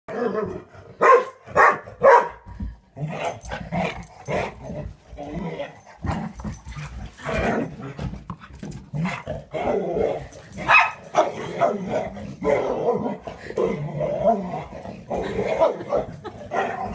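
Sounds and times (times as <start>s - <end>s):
dog barking and yipping: 1.0s - 2.4s, 10.6s - 11.8s.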